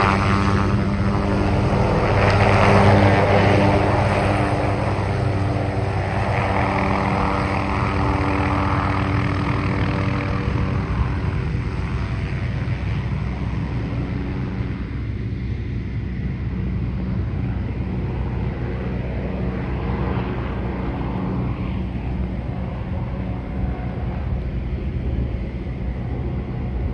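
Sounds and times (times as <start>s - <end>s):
helicopter turbine and rotor drone: 0.0s - 26.9s.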